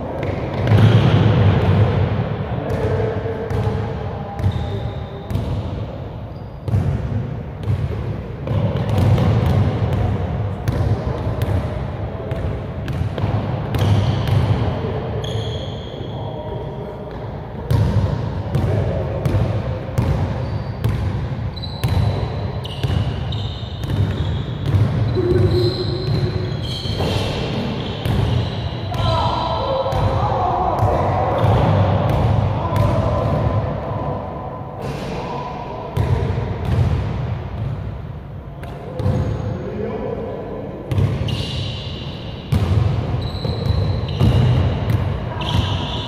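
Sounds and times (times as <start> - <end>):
sneaker squeaks: 4.4 - 5.6, 6.3 - 6.9, 15.1 - 17.2, 20.0 - 30.0, 40.9 - 46.0.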